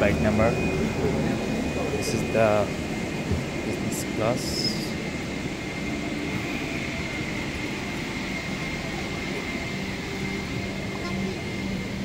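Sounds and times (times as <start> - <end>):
high steady whine: 0.0 - 12.0.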